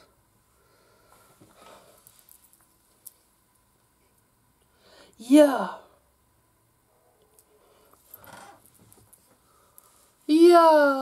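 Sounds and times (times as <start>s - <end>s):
chain necklace clicking and rustling: 2.0s - 3.2s, 8.0s - 9.9s.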